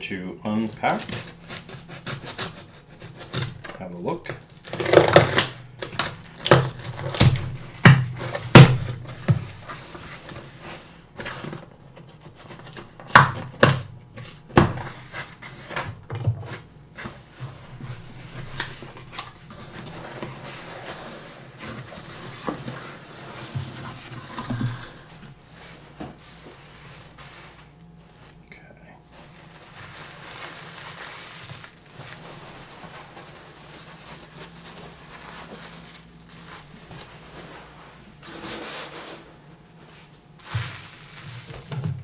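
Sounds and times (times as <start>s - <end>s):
tape cracking on cardboard box: 0.9s - 10.5s
paper rustling: 29.1s - 42.0s.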